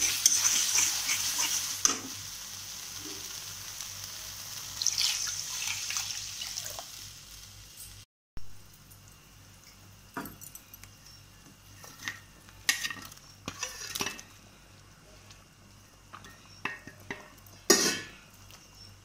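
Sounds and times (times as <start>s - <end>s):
spatula clinking and scraping pot: 0.0s - 2.1s, 11.8s - 14.3s, 16.1s - 18.2s
faint sizzle: 0.0s - 19.0s.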